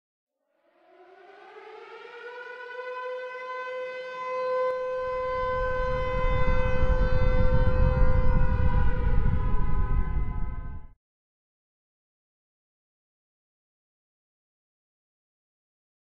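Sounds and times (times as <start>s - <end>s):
air-raid siren wailing: 0.6s - 11.0s
low rumble: 4.7s - 11.0s.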